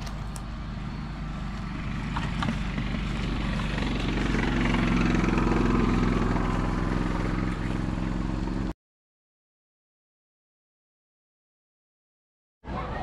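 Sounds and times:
vehicle engine driving past: 0.0s - 8.7s.

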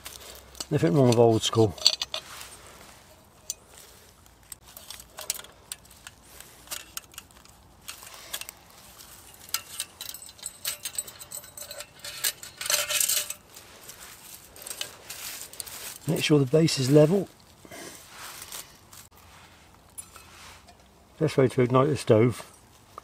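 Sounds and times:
rustle: 0.0s - 23.0s
metallic clinks and jingles: 0.1s - 15.8s.

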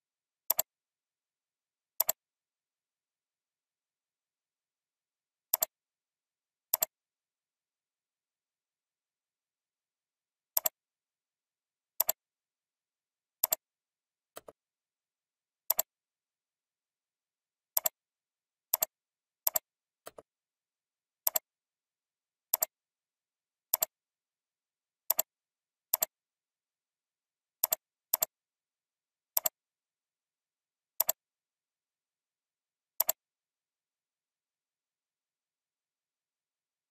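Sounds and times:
computer mouse clicks: 0.5s - 0.7s, 2.0s - 2.2s, 5.5s - 5.8s, 6.7s - 7.0s, 10.5s - 10.8s, 12.0s - 12.2s, 13.4s - 13.7s, 15.7s - 15.9s, 17.7s - 18.0s, 18.7s - 20.3s, 21.2s - 21.5s, 22.5s - 22.8s, 23.7s - 24.0s, 25.1s - 25.3s, 25.9s - 26.2s, 27.6s - 28.4s, 29.3s - 29.6s, 31.0s - 31.2s, 33.0s - 33.2s.

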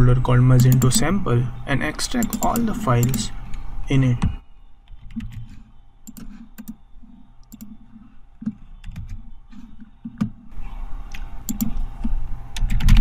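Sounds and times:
mouse and keyboard clicks: 11.1s - 13.0s.

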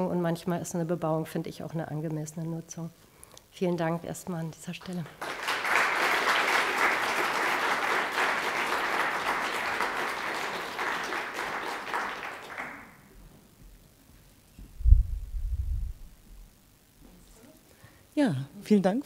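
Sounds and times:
audience applauding: 5.0s - 13.1s
low thump: 14.6s - 16.0s.

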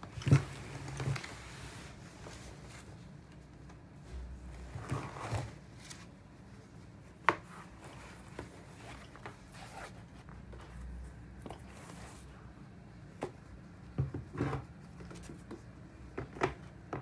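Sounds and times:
cloth bag rustling: 7.6s - 10.3s.

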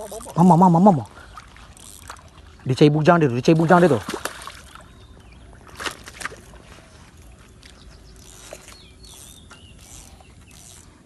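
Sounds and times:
water splashes: 0.0s - 7.8s
shallow water sloshing: 0.0s - 11.0s.

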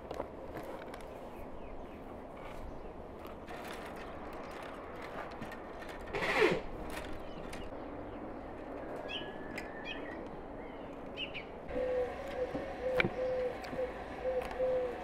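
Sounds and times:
bird chirps: 9.0s - 15.0s
dove cooing: 11.7s - 15.0s.

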